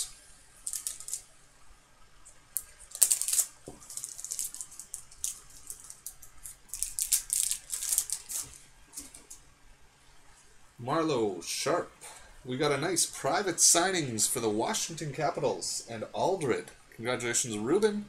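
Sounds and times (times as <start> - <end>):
cards crinkling and rustling: 0.0 - 1.3, 2.6 - 9.4
foil pack tearing: 0.7 - 1.2, 2.9 - 9.1.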